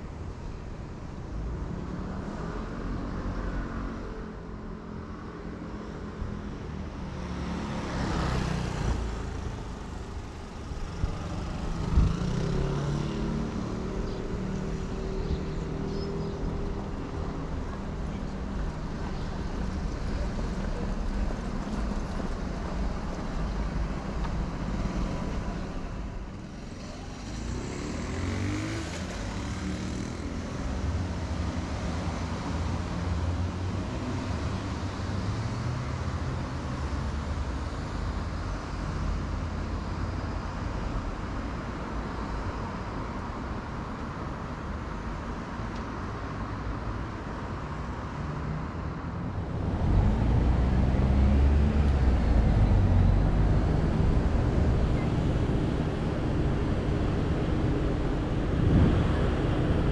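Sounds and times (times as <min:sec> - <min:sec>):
street traffic rumble: 0:00.0 - 0:59.9
vehicle pulling away: 0:49.4 - 0:59.9.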